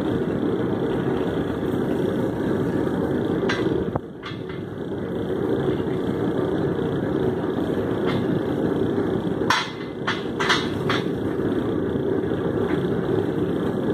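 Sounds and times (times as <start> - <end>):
low rushing noise: 0.0 - 13.9
metallic clanks on an anvil: 9.5 - 11.2.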